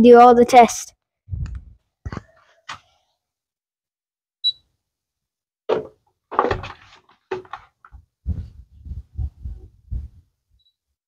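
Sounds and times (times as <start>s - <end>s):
bumps and rustles of handling: 5.7s - 9.6s.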